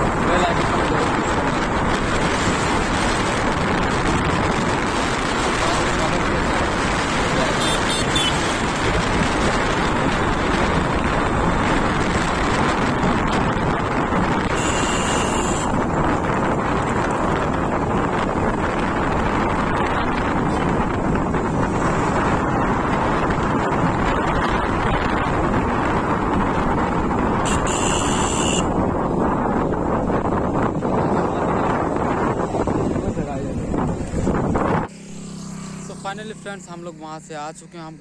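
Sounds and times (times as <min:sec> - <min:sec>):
road noise: 0:00.0 - 0:38.0
wind rushing over microphone: 0:00.0 - 0:38.0
motorcycle engine running: 0:33.9 - 0:37.6.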